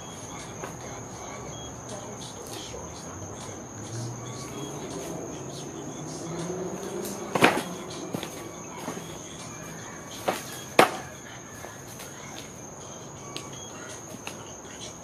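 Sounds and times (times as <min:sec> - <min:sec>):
crickets chirring: 0:00.0 - 0:15.0
wooden boards cracking apart: 0:10.2 - 0:11.1.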